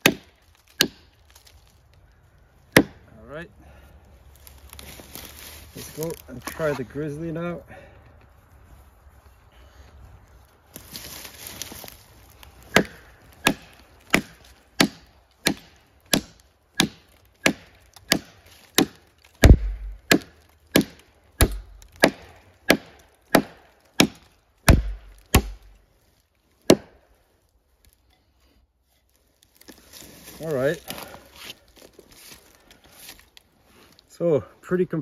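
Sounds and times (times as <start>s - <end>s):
knife chopping into a log: 0.0s - 1.1s, 2.7s - 3.0s, 12.7s - 25.7s, 26.7s - 27.0s.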